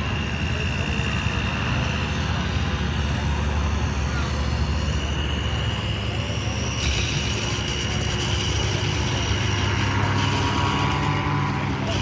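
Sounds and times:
high steady whine: 0:00.0 - 0:12.0
paramotor engines droning: 0:00.0 - 0:12.0.

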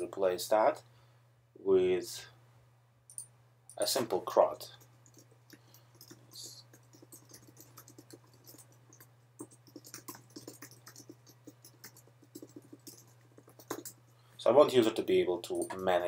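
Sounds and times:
typing on computer keyboard: 0:04.8 - 0:14.0.

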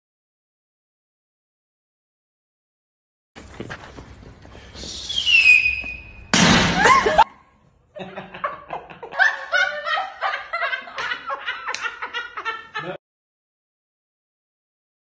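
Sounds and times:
falling whistle: 0:04.8 - 0:06.4
women laughing: 0:06.7 - 0:13.0.

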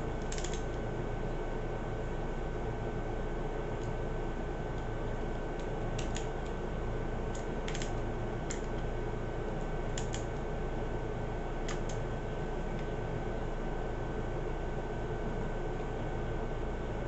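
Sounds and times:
steady hiss and hum: 0:00.0 - 0:17.0
screwdriver clicks: 0:00.2 - 0:00.7, 0:07.3 - 0:08.8, 0:10.0 - 0:10.3.

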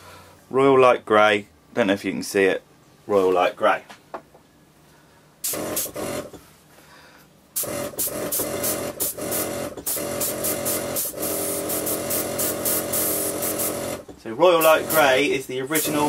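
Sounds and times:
compressor humming and pulsing: 0:00.0 - 0:16.0
airbrush air hissing: 0:07.6 - 0:14.0, 0:14.6 - 0:16.0.

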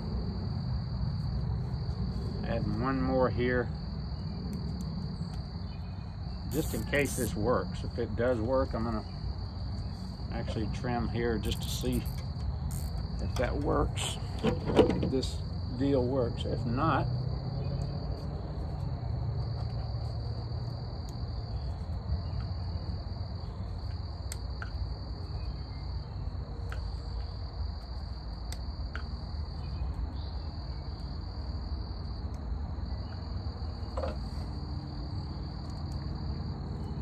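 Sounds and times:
insect chirring: 0:00.0 - 0:14.4, 0:15.1 - 0:37.0.

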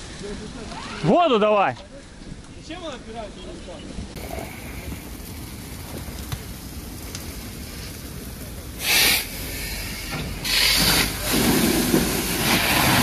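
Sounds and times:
hose nozzle spraying water: 0:08.8 - 0:13.0.

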